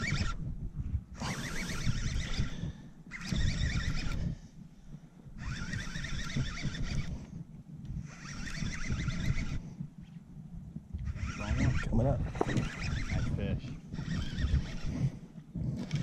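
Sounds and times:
fishing reel ticking whir: 0.0 - 0.5, 1.1 - 4.5, 5.4 - 7.3, 8.0 - 9.8, 11.0 - 16.0.

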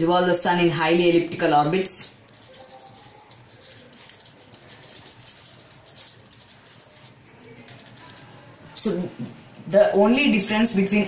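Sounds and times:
marker scratching on paper: 2.2 - 8.4.

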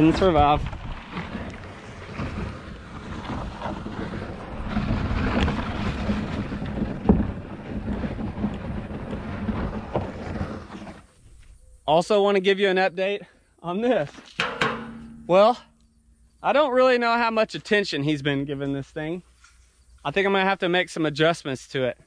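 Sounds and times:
sharp knock: 14.4 - 15.3.

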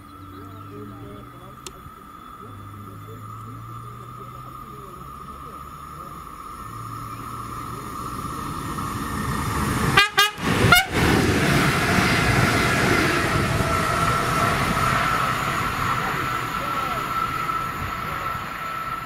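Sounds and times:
train motor whine: 0.0 - 19.0
train wheel and rail noise: 0.0 - 19.0
short train horn toots: 9.9 - 11.2.

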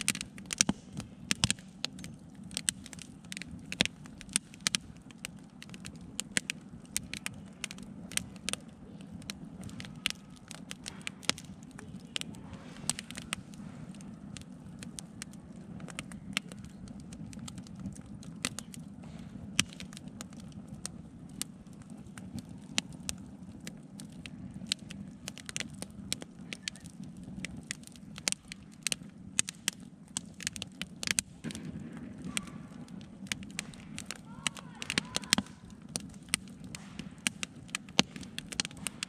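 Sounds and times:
low background rumble: 0.0 - 39.0
wood fire crackling and popping: 0.0 - 39.0.

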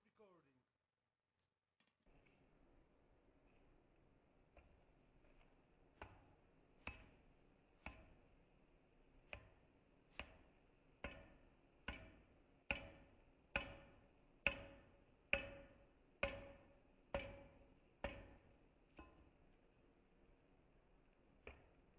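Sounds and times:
hammer striking steel on anvil: 11.0 - 19.3.

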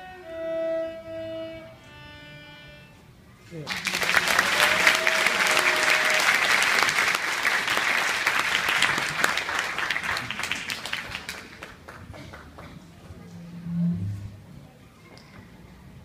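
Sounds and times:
audience applauding: 3.7 - 12.9.

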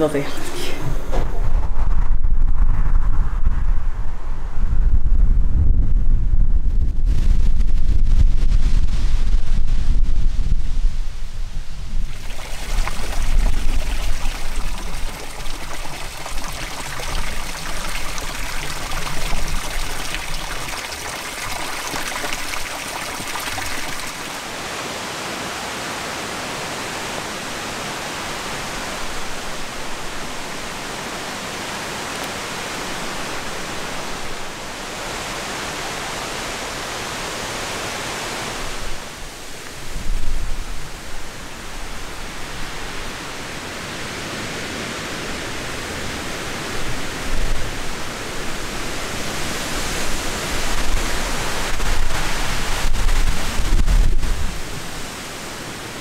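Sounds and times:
running water hissing: 0.0 - 1.2, 12.0 - 24.9.

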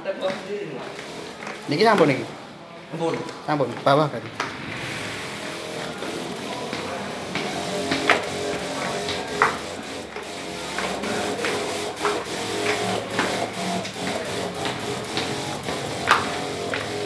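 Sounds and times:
sprayer mechanical whir: 0.3 - 2.4, 4.5 - 17.0
spray hiss: 0.8 - 2.3, 4.6 - 17.0
knocks and clicks: 5.6 - 17.0.

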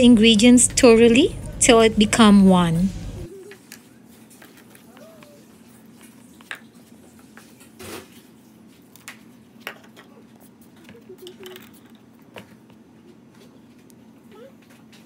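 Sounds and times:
faint steady hum: 0.0 - 3.6.

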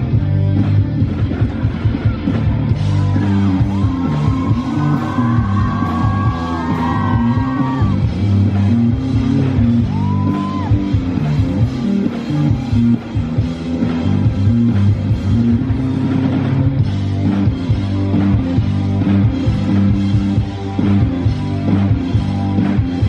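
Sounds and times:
rock band playing live: 0.0 - 23.0.

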